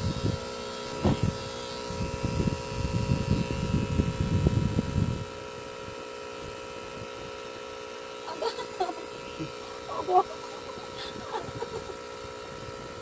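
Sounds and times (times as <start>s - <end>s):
tattoo machine humming: 0.0s - 13.0s.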